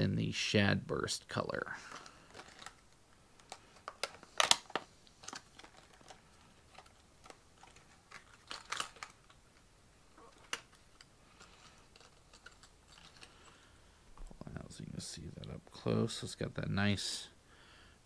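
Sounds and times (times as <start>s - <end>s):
rustling: 1.8s - 14.4s
plastic box clicks and crackles: 1.9s - 9.4s, 10.3s - 13.3s.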